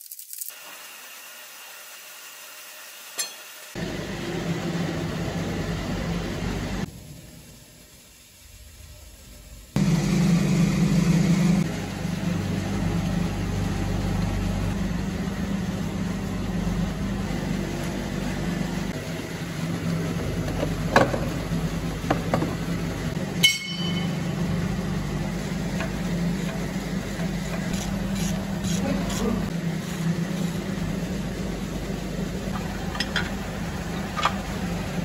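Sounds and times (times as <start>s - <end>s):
low mechanical hum: 0.5s - 35.0s
sharp ringing metal clink: 3.2s - 3.5s, 23.4s - 24.2s.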